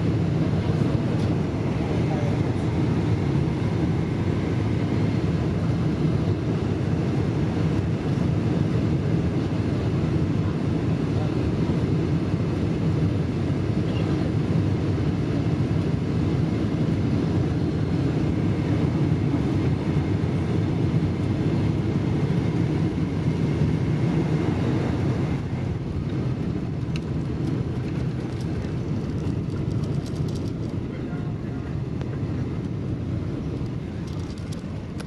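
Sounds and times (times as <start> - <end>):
airplane engines rumbling: 0.0 - 35.0
light rattles: 27.8 - 30.8.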